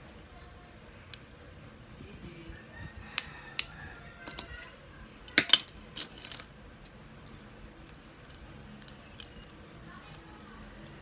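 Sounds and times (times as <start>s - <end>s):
plastic bricks clicking and clattering: 5.2s - 6.5s.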